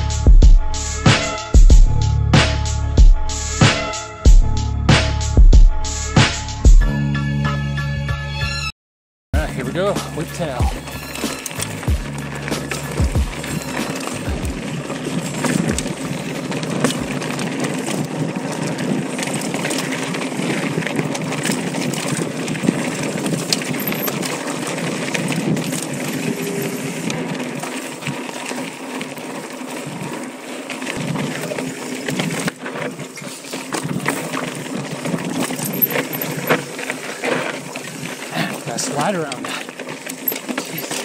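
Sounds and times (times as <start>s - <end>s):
tyres crunching over gravel: 9.4s - 41.0s
bike frame rattling and clicking: 9.6s - 41.0s.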